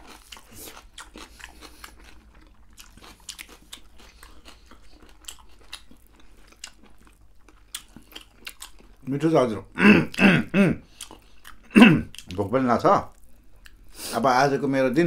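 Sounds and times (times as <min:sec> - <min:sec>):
people chewing and crunching food: 0:00.0 - 0:14.7.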